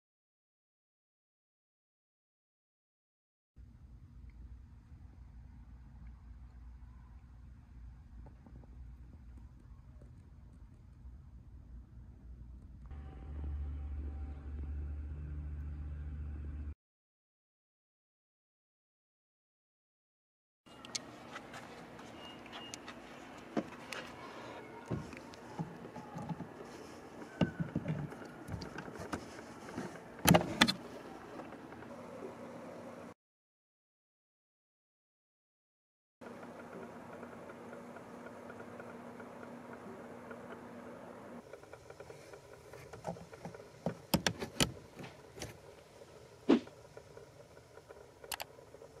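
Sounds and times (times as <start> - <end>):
sharp clicks: 47.0 - 48.8.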